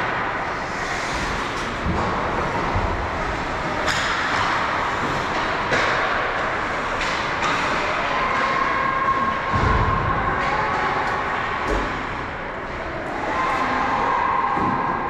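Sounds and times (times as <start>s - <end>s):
hockey sticks and puck knocking: 0.0s - 8.6s.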